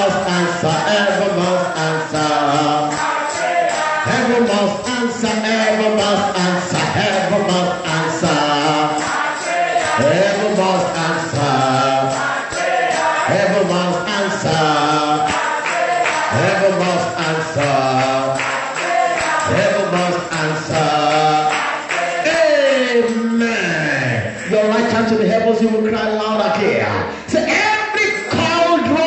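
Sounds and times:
congregation singing a chant: 0.0 - 25.7.

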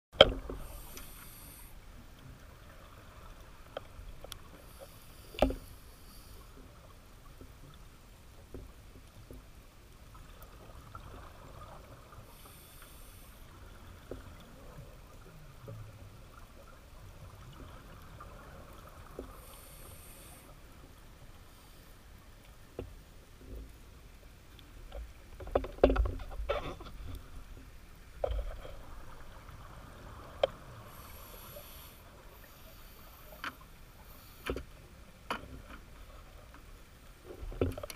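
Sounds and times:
underwater ambience: 0.2 - 37.9.

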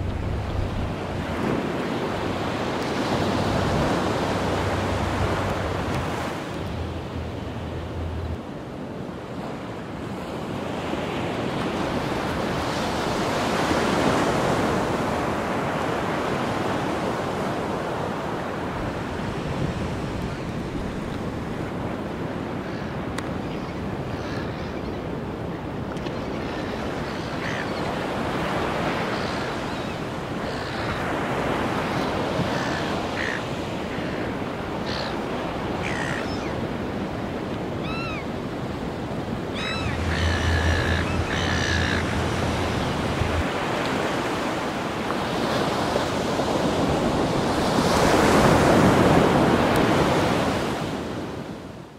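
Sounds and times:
ocean surf washing: 0.0 - 51.9
short bird calls: 39.6 - 42.4.

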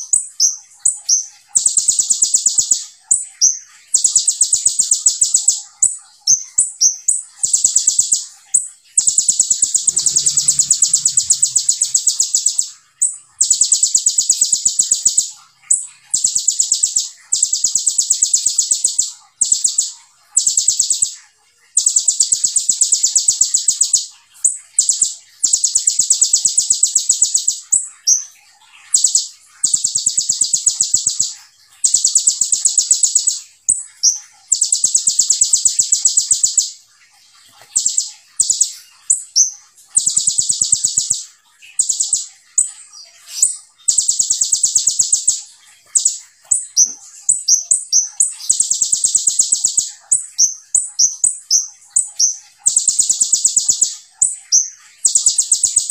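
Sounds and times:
bird rapid high trills: 0.0 - 21.2, 37.4 - 55.9
bird chirps: 0.0 - 55.9.

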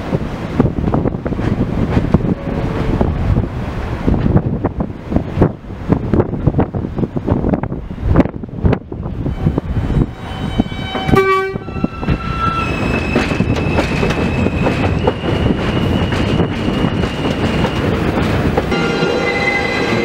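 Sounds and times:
subway train rumbling on rails: 0.0 - 20.0
train horn toot: 10.5 - 12.7.

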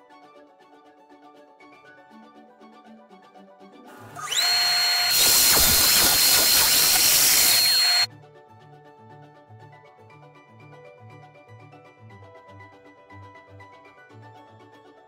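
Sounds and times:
soft background music: 0.0 - 4.2, 8.1 - 15.0
saw cutting wood: 4.0 - 8.1
table saw motor whine: 4.0 - 8.1.

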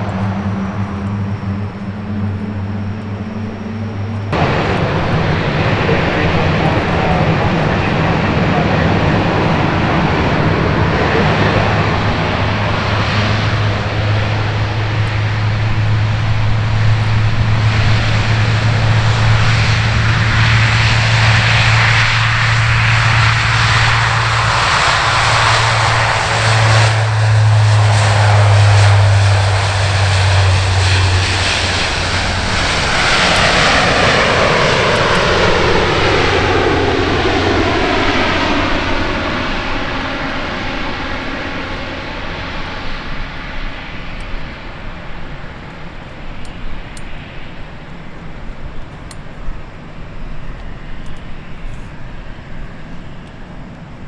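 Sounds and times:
turboprop airplane taking off: 0.0 - 54.0
falling sweeping tones: 18.3 - 40.2.

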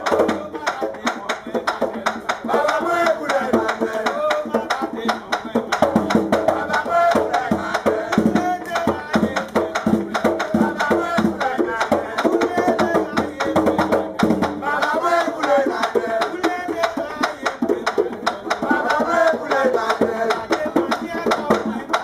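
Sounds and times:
hand drum beaten quickly: 0.0 - 22.0
person singing: 0.0 - 22.0.

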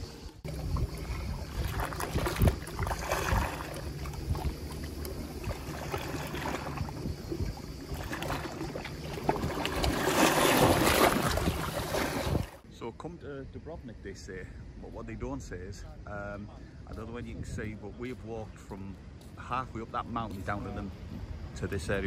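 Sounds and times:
wind rumbling on microphone: 0.0 - 12.6, 13.3 - 19.0
sea waves splashing on rocks: 1.4 - 7.0, 7.8 - 12.6.

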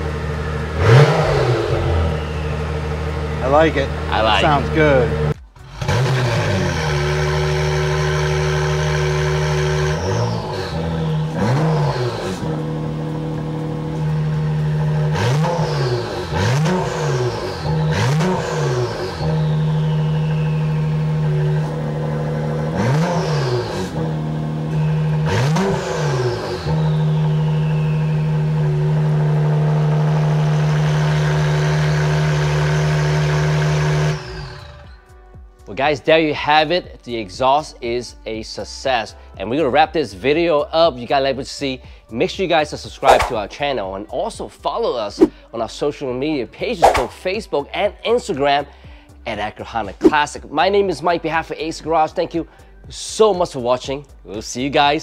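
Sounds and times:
engine rev blips: 0.0 - 35.3, 43.0 - 43.5, 46.8 - 47.2
car engine idling: 0.0 - 35.6
falling turbo whistle: 0.4 - 3.4, 14.0 - 35.0.

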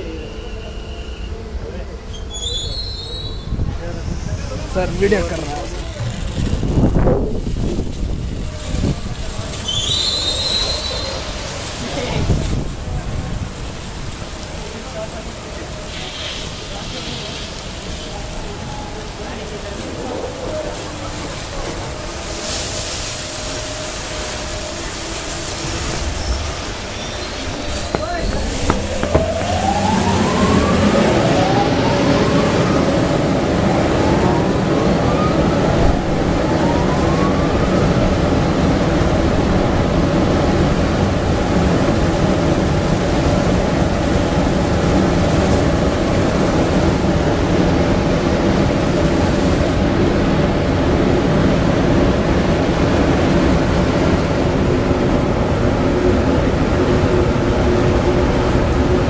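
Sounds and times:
train wash water jets rushing: 0.0 - 59.0
rising whines: 27.2 - 34.5.

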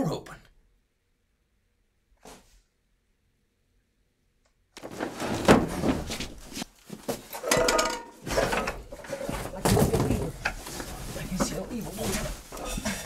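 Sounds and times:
objects rummaged with thuds and clatter: 4.8 - 13.0.

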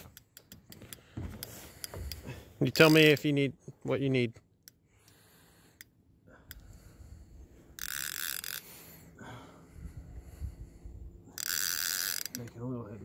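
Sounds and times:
fishing reel drag buzzing: 5.0 - 9.1, 9.9 - 12.7.

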